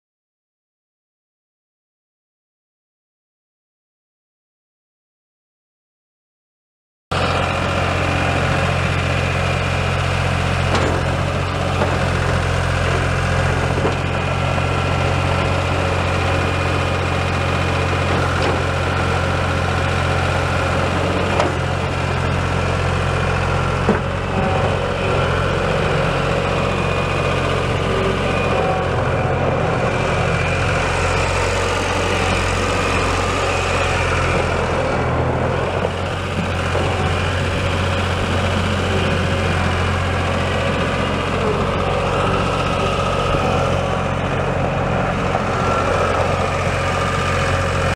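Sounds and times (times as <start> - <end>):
diesel engine running: 7.1 - 47.9.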